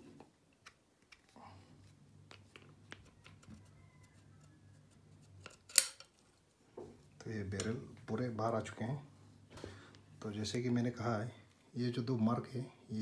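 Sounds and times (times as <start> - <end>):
faint low hum: 0.0 - 13.0
metal parts clicking: 5.4 - 6.2.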